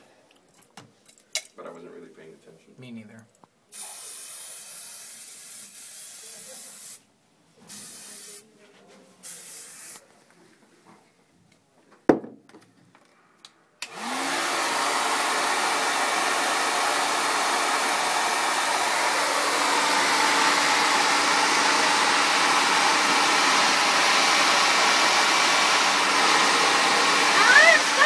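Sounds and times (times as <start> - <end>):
hair dryer blowing: 13.8 - 28.0.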